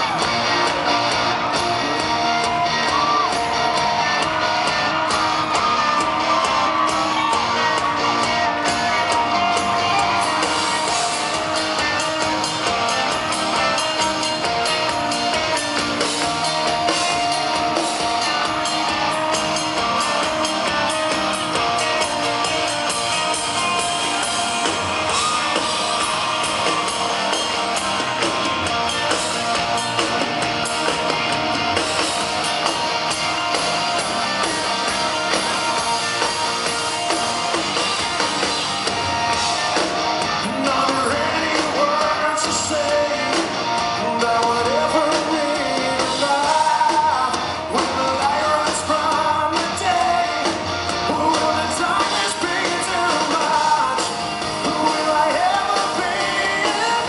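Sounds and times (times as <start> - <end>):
drums: 0.0 - 57.0
electric guitar: 0.0 - 57.0
man singing lead vocal: 1.4 - 26.0, 40.4 - 57.0.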